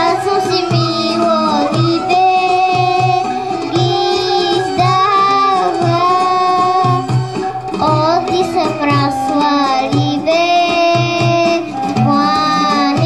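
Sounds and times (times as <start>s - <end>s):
girl singing into a microphone: 0.0s - 7.2s, 7.8s - 13.0s
instrumental accompaniment with low beat: 0.0s - 13.0s.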